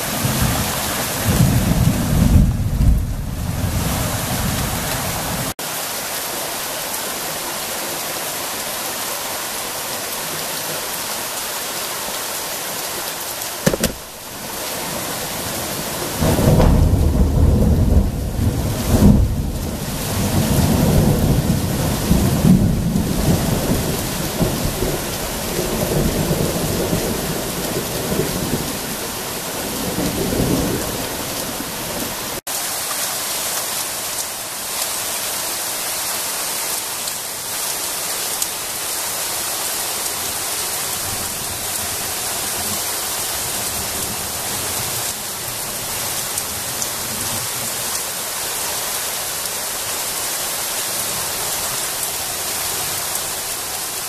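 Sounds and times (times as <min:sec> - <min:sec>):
rain hissing: 0:00.0 - 0:54.0
thunder rumbling: 0:01.2 - 0:03.9, 0:16.2 - 0:28.7.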